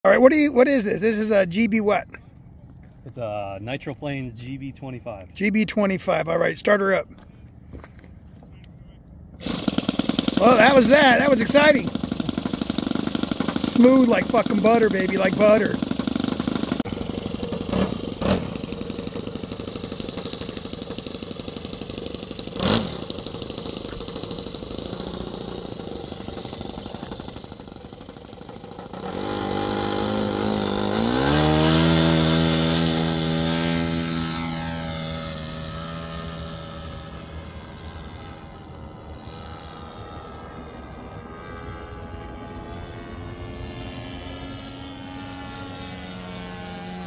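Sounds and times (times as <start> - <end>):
model plane engine buzzing: 9.4 - 47.0.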